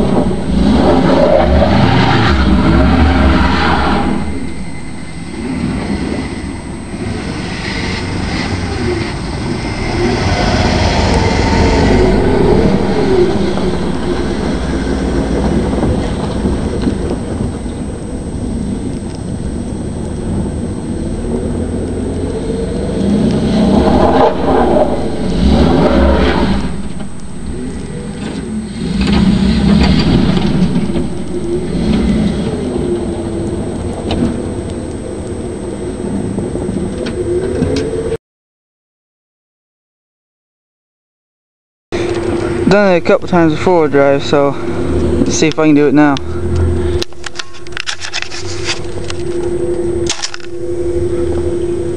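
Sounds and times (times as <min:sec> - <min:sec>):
pickup engine revving: 0:00.0 - 0:06.3, 0:07.8 - 0:17.2, 0:20.8 - 0:34.7.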